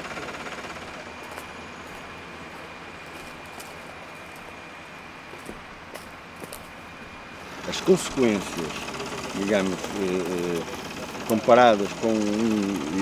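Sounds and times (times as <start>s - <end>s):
high whine: 0.0s - 13.0s
drill rig droning: 7.4s - 13.0s.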